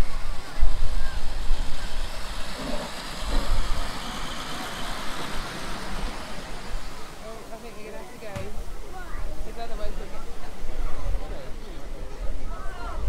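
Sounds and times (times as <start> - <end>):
miniature train rumbling past: 0.0 - 8.3.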